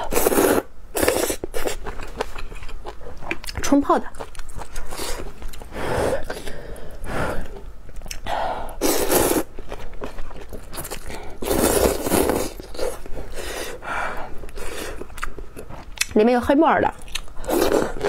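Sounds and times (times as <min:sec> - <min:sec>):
person slurping noodles: 0:00.0 - 0:01.8, 0:08.8 - 0:09.5, 0:11.4 - 0:13.8
person chewing: 0:00.0 - 0:16.1, 0:17.0 - 0:18.0.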